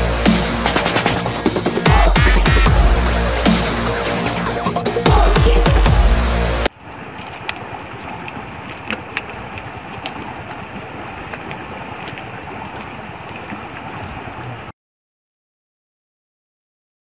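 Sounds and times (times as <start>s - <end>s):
steady rushing outdoor noise: 0.0s - 14.7s.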